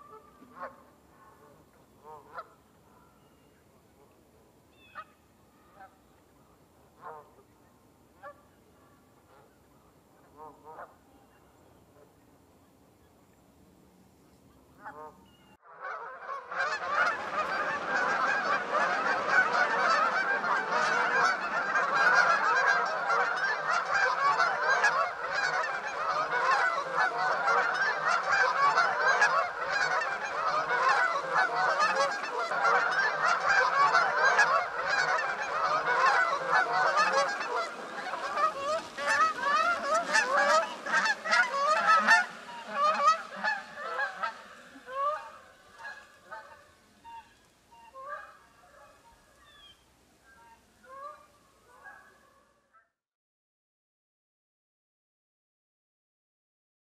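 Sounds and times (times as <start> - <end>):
geese honking: 0.0 - 3.2, 4.8 - 6.0, 7.0 - 7.5, 10.2 - 11.0, 14.8 - 52.4.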